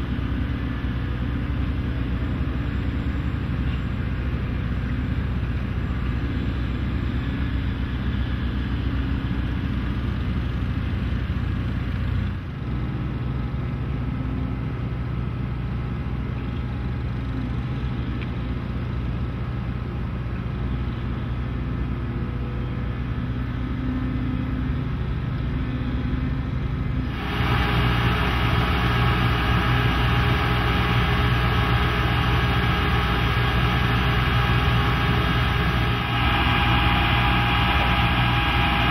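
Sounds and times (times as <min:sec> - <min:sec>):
diesel engine drone: 0:00.0 - 0:38.9.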